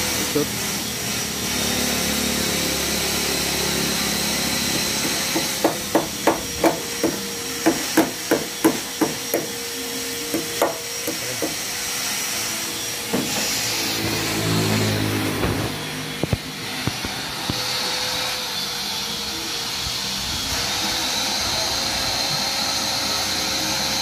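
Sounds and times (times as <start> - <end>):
hammer tapping on metal: 4.8 - 9.6, 10.3 - 11.6.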